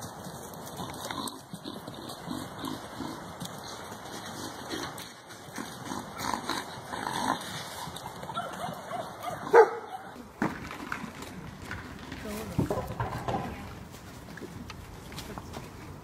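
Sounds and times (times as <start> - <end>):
small animals yipping: 7.3 - 10.2.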